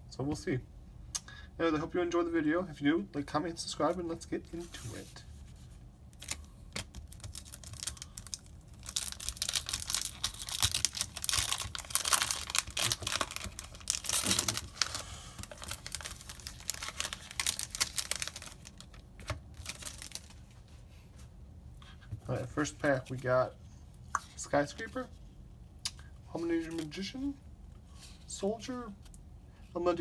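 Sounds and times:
foil wrapper crinkling: 6.1s - 20.5s.

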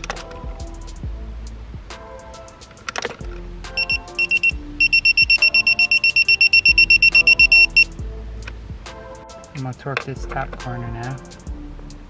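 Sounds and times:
torque wrench beeping: 3.8s - 7.9s.

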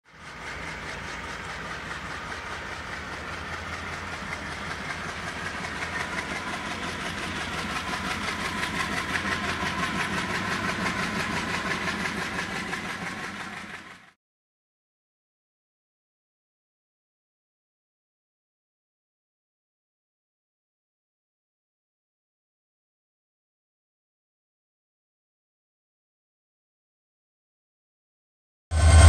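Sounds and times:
diesel locomotive engine droning: 0.0s - 14.2s, 28.7s - 29.0s.

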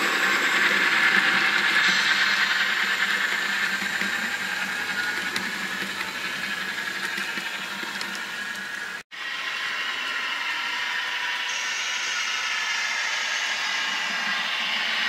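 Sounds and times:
model train wheels rattling: 0.0s - 9.0s.

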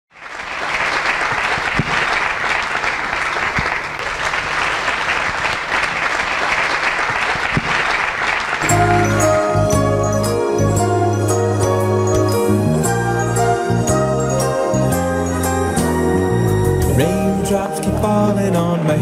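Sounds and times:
audience applauding: 0.1s - 9.6s
music: 8.6s - 19.0s.

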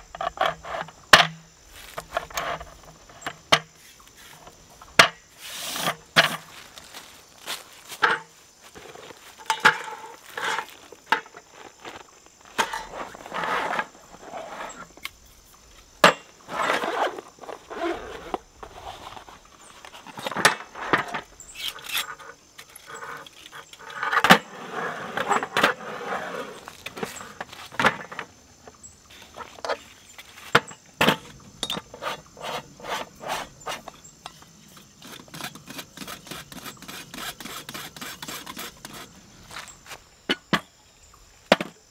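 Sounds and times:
metal camp stove clattering: 7.9s - 11.4s, 12.5s - 13.0s, 30.5s - 32.0s.

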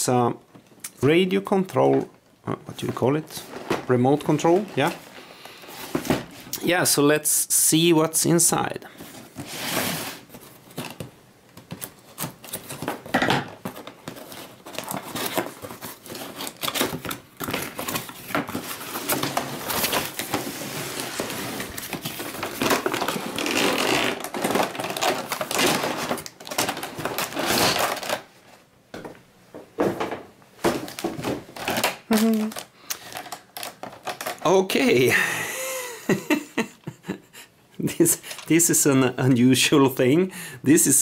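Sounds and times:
cardboard and plastic rustling: 1.9s - 6.5s, 8.9s - 28.6s, 29.8s - 34.5s.

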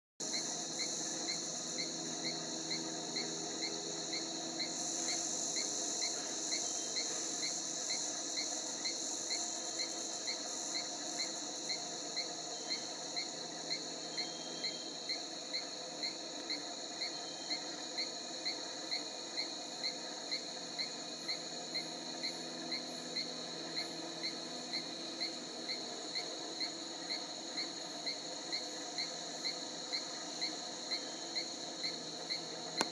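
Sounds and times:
high-pitched insect drone: 0.2s - 32.9s
regular insect chirp: 0.2s - 32.9s.

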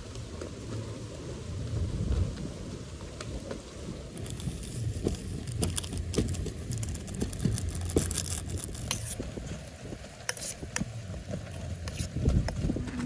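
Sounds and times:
low steady rumble: 0.0s - 13.0s
sachet crinkling: 4.2s - 9.2s
plastic spoon scraping metal pot: 4.2s - 9.3s, 10.3s - 10.6s, 11.8s - 12.1s.

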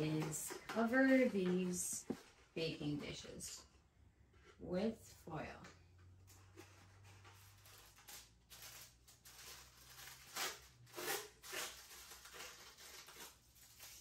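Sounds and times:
cardboard and foil rustling: 6.3s - 14.0s.

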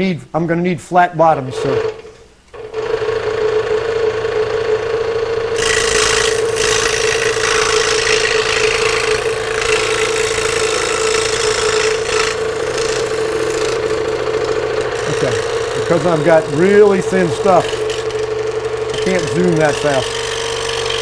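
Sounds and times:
scroll saw motor hum: 1.6s - 21.0s
saw blade cutting plywood: 5.5s - 21.0s.

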